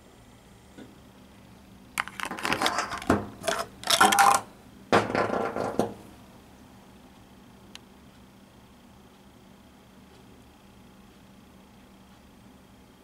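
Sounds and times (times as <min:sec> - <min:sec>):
plastic tube clattering and scraping: 0:02.0 - 0:04.5.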